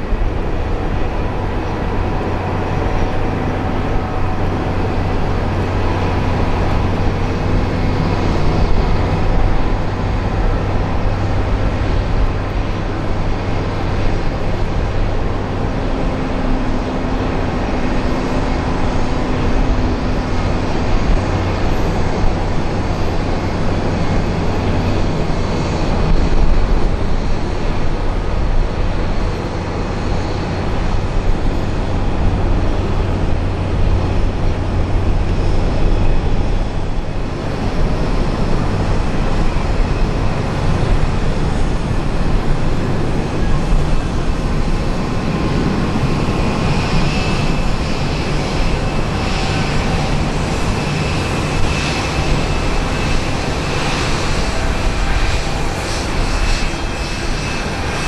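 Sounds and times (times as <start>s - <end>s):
jet engines rumbling: 0.0s - 58.0s.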